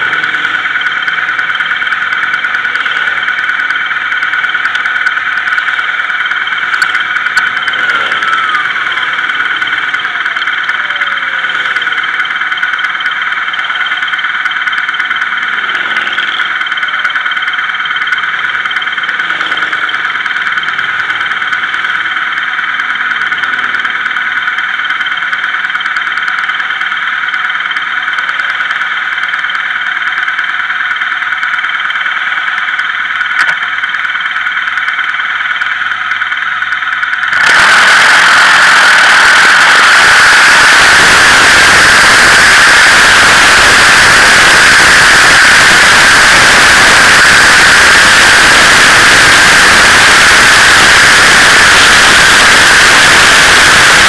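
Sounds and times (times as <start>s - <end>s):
highway traffic: 0.0s - 50.7s
steady high-pitched hum: 0.0s - 54.0s.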